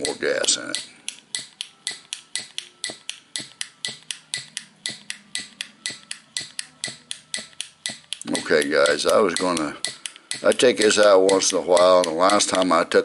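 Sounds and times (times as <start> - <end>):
piezo lighter clicking: 0.0 - 12.7.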